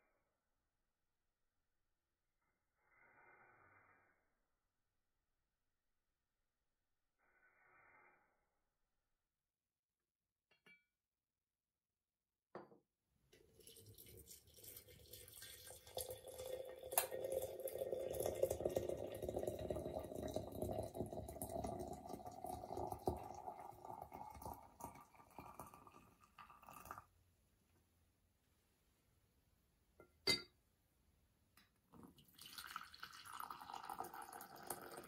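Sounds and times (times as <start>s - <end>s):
water pouring into teapot: 13.4s - 27.1s, 32.2s - 35.0s.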